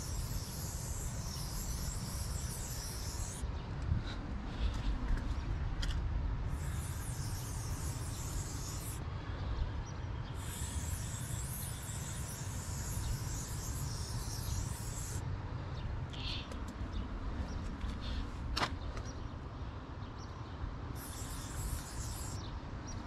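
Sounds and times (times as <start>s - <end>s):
spray paint can hissing: 0.0s - 3.4s, 6.5s - 9.0s, 10.4s - 15.2s, 21.0s - 22.5s.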